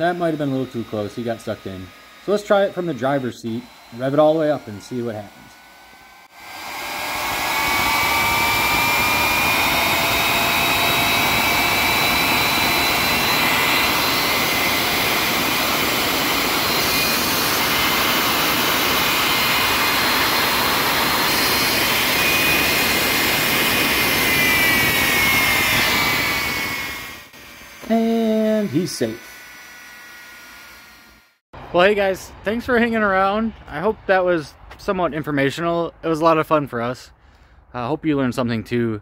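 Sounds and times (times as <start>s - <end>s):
jet engine roaring rush: 0.0s - 29.4s
high jet whine: 0.0s - 36.0s.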